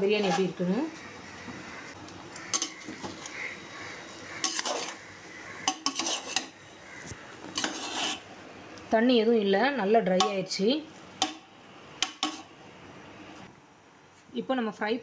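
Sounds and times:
metal spoon scraping metal pot: 2.5 - 6.7, 7.4 - 8.3.

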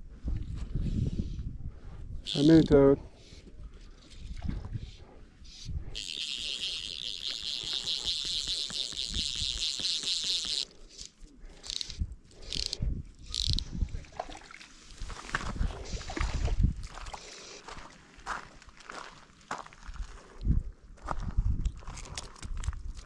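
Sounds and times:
fly line zipping: 2.3 - 2.7, 6.0 - 13.6
fly reel ratchet buzzing: 2.3 - 2.7, 6.0 - 13.6.

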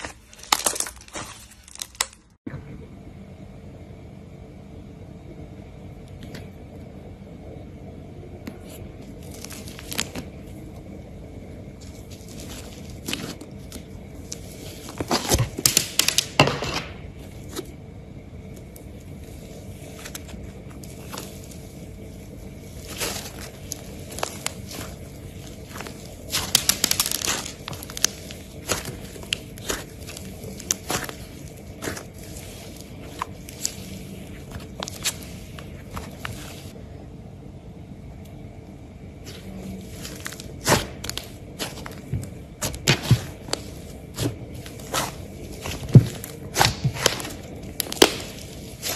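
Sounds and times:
slime crackling and popping: 0.0 - 2.4, 9.2 - 10.4, 11.7 - 17.6, 18.5 - 36.8, 39.2 - 48.9.

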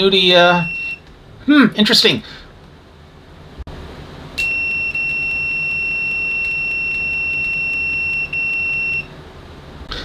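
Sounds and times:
multimeter continuity buzzer tone: 4.4 - 9.1.

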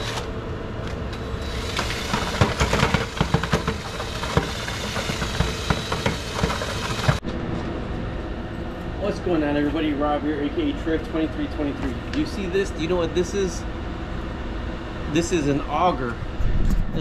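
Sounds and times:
power drill motor whine: 0.0 - 0.3, 1.1 - 7.2
mixer churning in plastic bucket: 1.4 - 7.2
auger knocking against bucket: 1.8 - 7.2.

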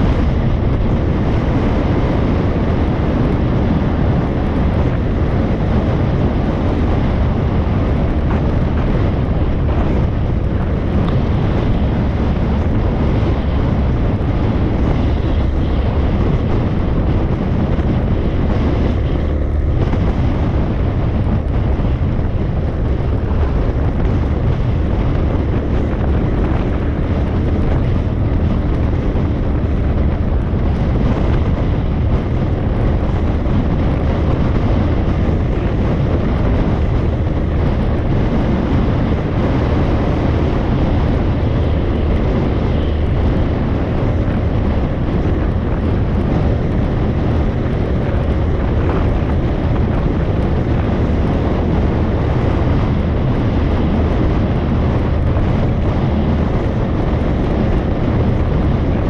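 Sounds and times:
motorcycle running: 0.0 - 59.0
wind buffeting microphone: 0.0 - 59.0.

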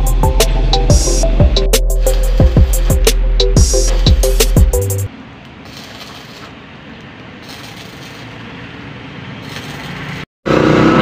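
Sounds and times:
distant traffic hum: 0.0 - 11.0.

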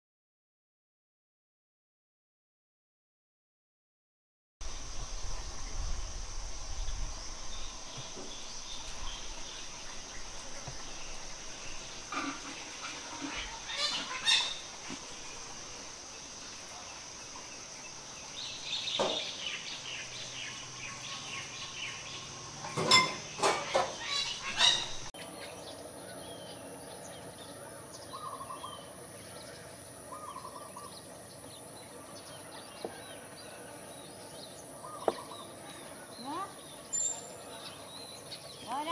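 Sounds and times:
birds calling: 4.6 - 38.9.

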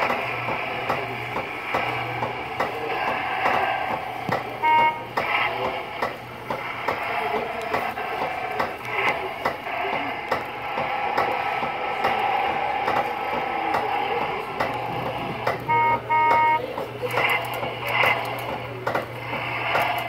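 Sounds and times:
kiddie ride rattling and clicking: 0.0 - 20.0
short electronic beeps: 4.6 - 5.1, 15.7 - 16.6.

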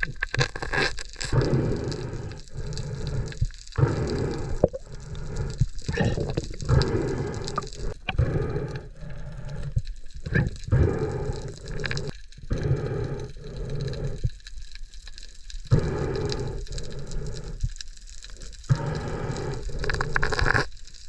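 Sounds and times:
underwater swirling water: 0.0 - 21.0.

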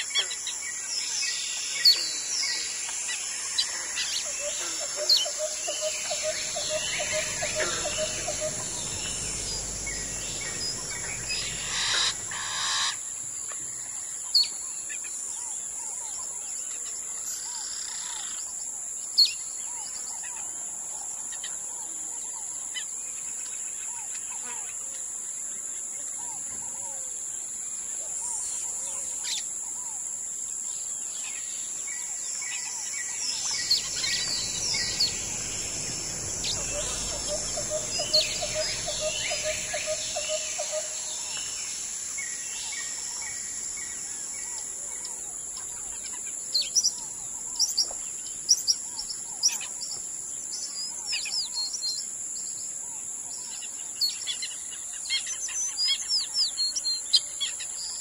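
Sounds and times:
forest birds chirping: 0.0 - 58.0
insects droning: 0.0 - 58.0
fast low repeated notes: 6.0 - 12.5, 33.5 - 40.7
low rumble: 6.2 - 12.5, 33.5 - 40.6.

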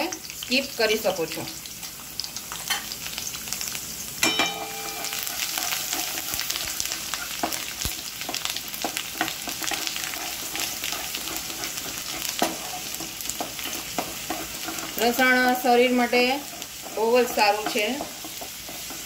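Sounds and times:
garlic sizzling in hot oil: 0.0 - 19.0
short metallic ring: 4.2 - 5.2
spatula scraping pan: 4.5 - 19.0.

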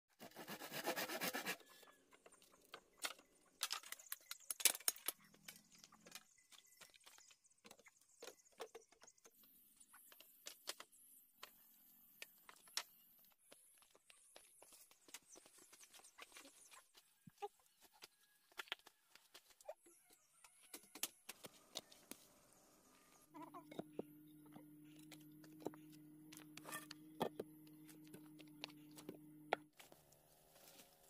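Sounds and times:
rapid rasping strokes on bamboo: 0.2 - 1.7.

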